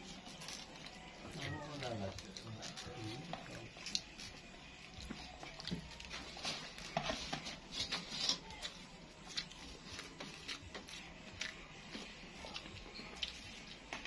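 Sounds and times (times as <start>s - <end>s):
chewing rice: 0.0s - 14.0s.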